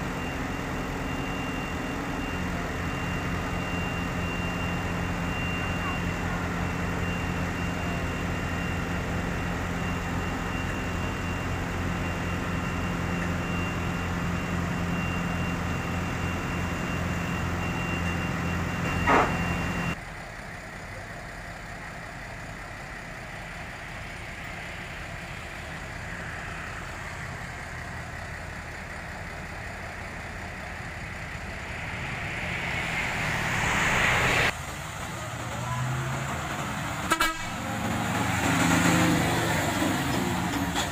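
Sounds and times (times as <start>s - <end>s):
diesel truck engine idling: 0.0s - 38.4s
minibus passing: 0.0s - 40.9s
road noise: 0.0s - 40.9s
high whine: 29.6s - 34.8s.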